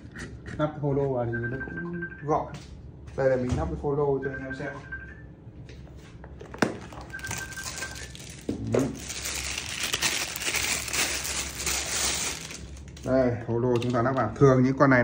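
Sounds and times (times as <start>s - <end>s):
plastic bag crinkling: 6.6s - 14.2s.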